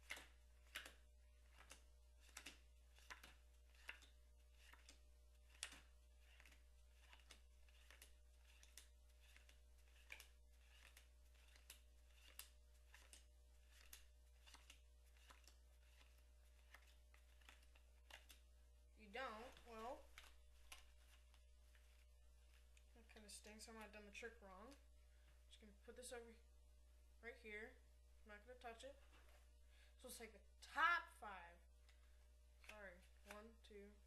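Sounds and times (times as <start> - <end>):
playing cards clicking and sliding: 0.0 - 18.5, 19.2 - 24.9, 31.8 - 33.7.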